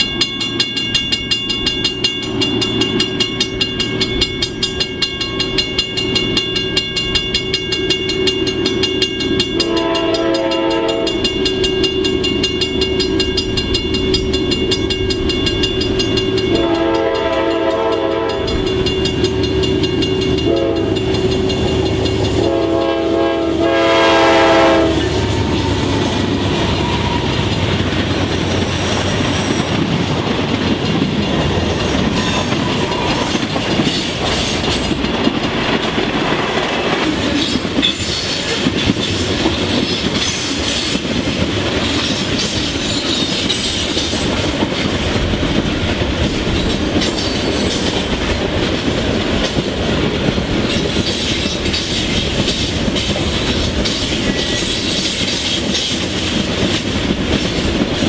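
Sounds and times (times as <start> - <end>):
train wheels clicking over rail joints: 0.0 - 23.7, 24.5 - 58.0
locomotive air horn: 9.6 - 11.4, 16.5 - 18.6, 20.4 - 21.4, 22.3 - 27.6.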